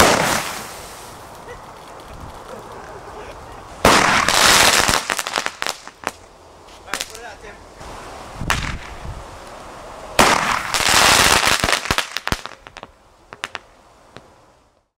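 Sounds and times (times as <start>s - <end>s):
fireworks crackling and popping: 0.0s - 14.9s.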